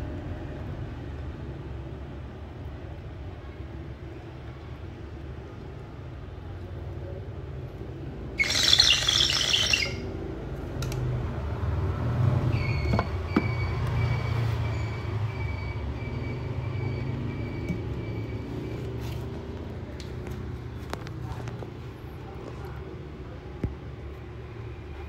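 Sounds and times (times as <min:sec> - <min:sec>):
low traffic rumble: 0:00.0 - 0:25.0
harsh high-pitched sound: 0:08.4 - 0:10.1.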